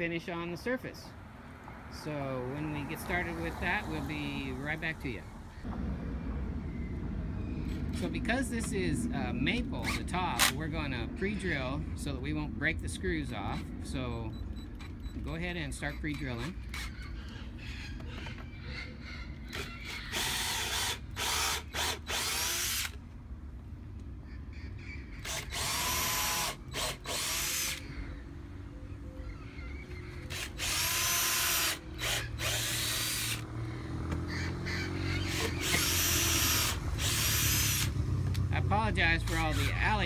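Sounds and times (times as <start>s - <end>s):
cordless drill boring into wood: 19.5s - 23.0s, 25.2s - 27.8s, 30.3s - 33.4s, 35.2s - 37.9s.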